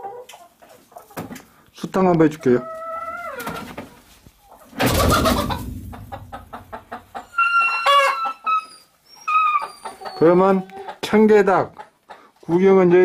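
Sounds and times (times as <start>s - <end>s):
chickens clucking: 0.0s - 13.0s
high pitched chicken calls: 4.6s - 11.0s.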